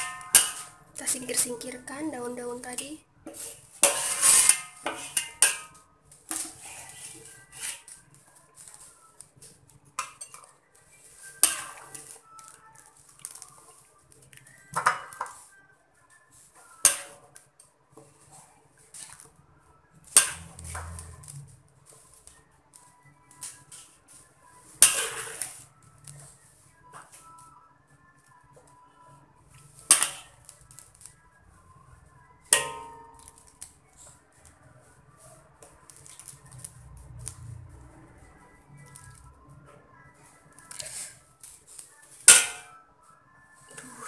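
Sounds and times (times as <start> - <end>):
metal ladle scraping a wok: 0.0 - 1.2, 3.3 - 8.0, 11.3 - 12.2, 20.1 - 21.2, 24.8 - 25.7, 29.9 - 30.4, 40.7 - 41.3.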